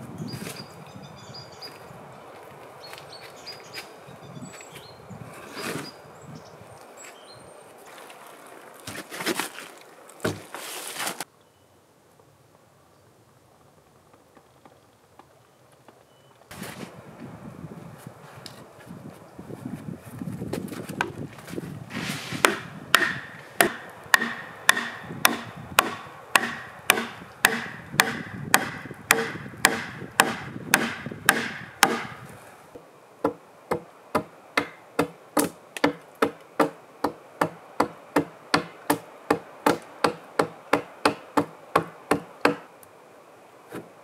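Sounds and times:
hand tool striking wood: 0:10.2 - 0:10.6, 0:22.2 - 0:32.3, 0:33.2 - 0:42.7.

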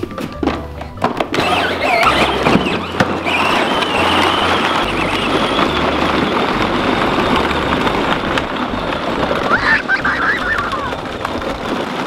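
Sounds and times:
plastic wheels crunching on gravel: 0:00.0 - 0:12.0.

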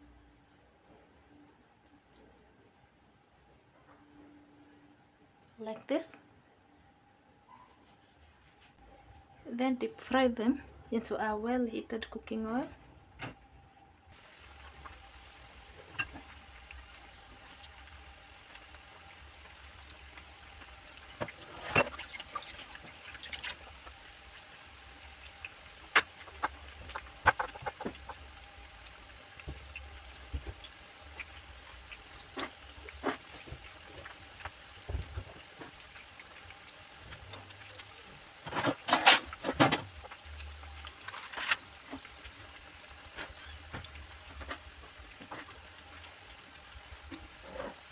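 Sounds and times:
food sizzling in hot oil: 0:14.1 - 0:47.9
sharp pops of frying oil: 0:15.8 - 0:16.4, 0:25.4 - 0:28.3.

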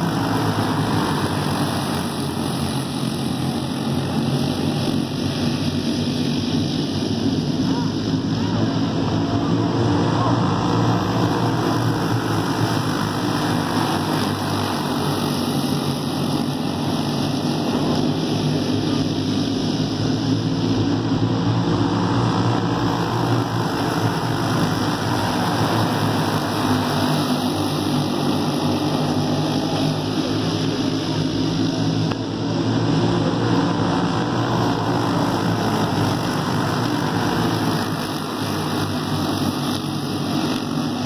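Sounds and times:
go-kart engines: 0:00.0 - 0:41.0.

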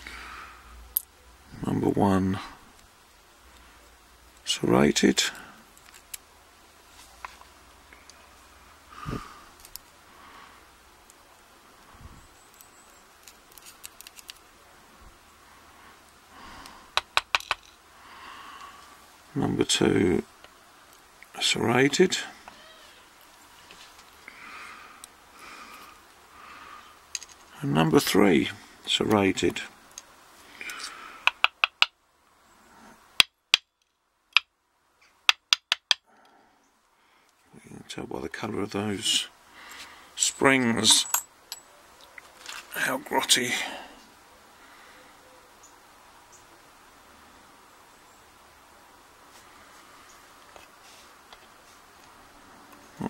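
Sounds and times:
pins tapping on wooden tray: 0:17.0 - 0:17.7, 0:31.2 - 0:31.9, 0:35.3 - 0:36.0
light metallic clicks and clinks: 0:40.3 - 0:41.7.

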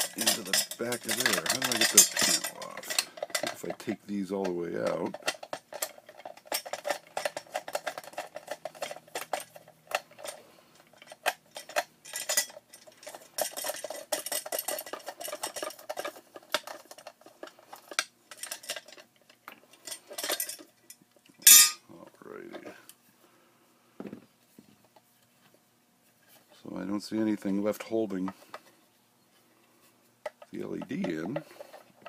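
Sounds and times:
plastic panel parts rattling: 0:00.0 - 0:19.1, 0:30.2 - 0:32.0.

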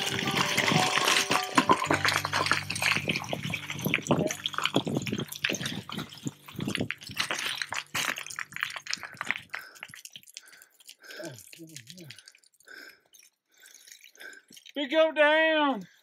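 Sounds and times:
boots scrambling over loose rock: 0:00.0 - 0:10.0
stones clattering: 0:00.0 - 0:12.3.

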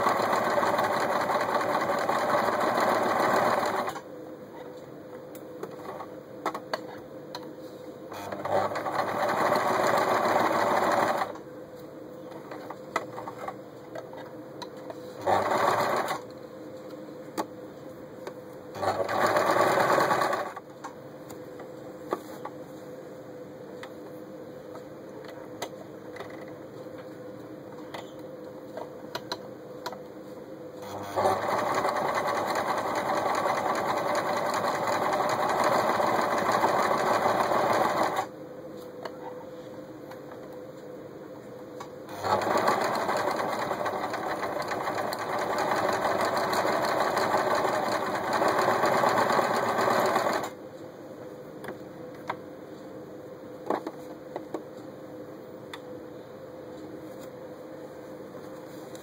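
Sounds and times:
sewing machine stitching: 0:00.0 - 0:04.0, 0:08.1 - 0:11.4, 0:15.2 - 0:16.2, 0:18.8 - 0:20.6, 0:30.8 - 0:38.3, 0:42.1 - 0:50.5.

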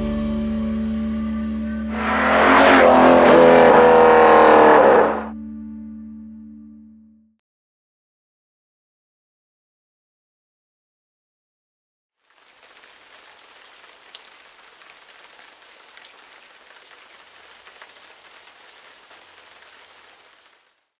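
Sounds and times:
steady rain falling: 0:12.2 - 0:21.0.

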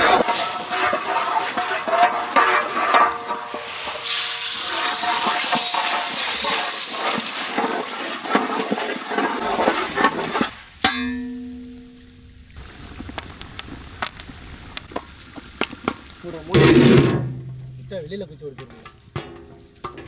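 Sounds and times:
ladle scraping in pot: 0:00.0 - 0:11.2
popcorn sizzling in hot oil: 0:00.0 - 0:20.0
metal clank: 0:10.8 - 0:12.2, 0:16.5 - 0:20.0.

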